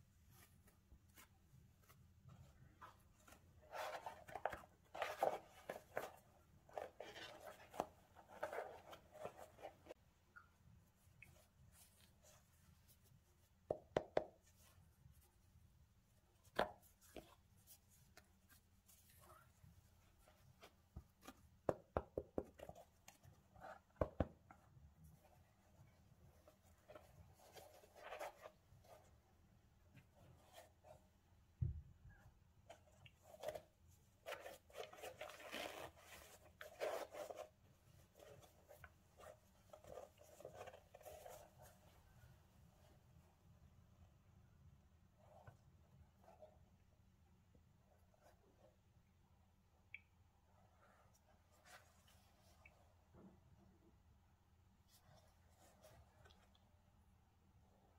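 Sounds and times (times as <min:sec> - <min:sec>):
gloved hands rubbing sneaker: 0:33.0 - 0:43.1.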